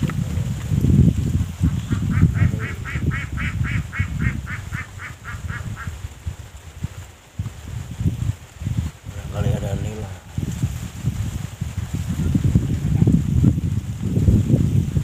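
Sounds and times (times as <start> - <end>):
duck quacking: 1.9 - 6.0.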